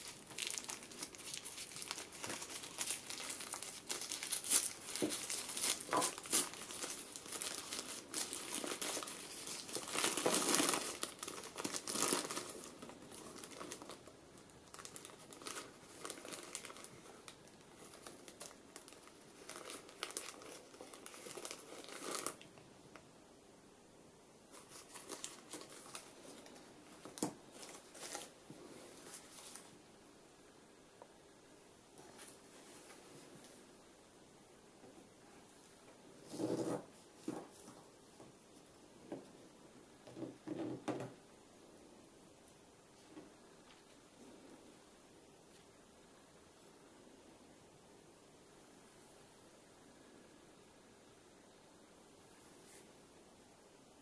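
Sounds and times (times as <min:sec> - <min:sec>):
plastic wrapper crinkling: 0:00.0 - 0:23.0, 0:24.5 - 0:28.4.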